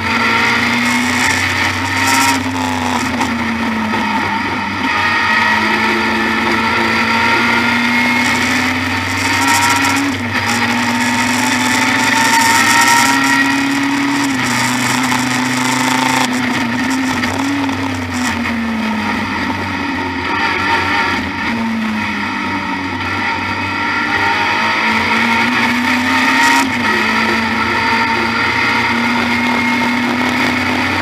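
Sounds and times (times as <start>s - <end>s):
racing car engine revving: 0.0s - 31.0s.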